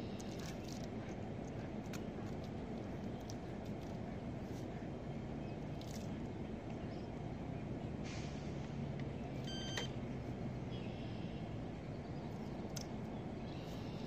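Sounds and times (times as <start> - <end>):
bite alarm beep: 9.5 - 9.9.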